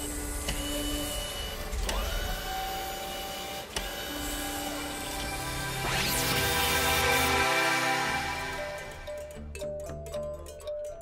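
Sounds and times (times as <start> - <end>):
mechanical whirring: 0.0 - 9.1
short rising whine: 4.1 - 9.4.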